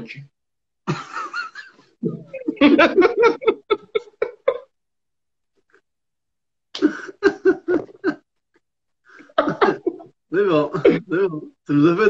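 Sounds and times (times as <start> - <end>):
man laughing: 0.9 - 4.7, 6.8 - 8.3, 9.3 - 11.3.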